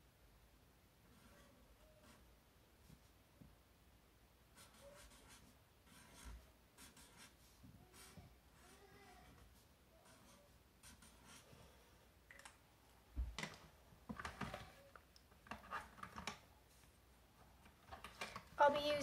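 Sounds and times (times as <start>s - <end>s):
marker scratching on paper: 1.1s - 2.3s, 4.5s - 11.9s.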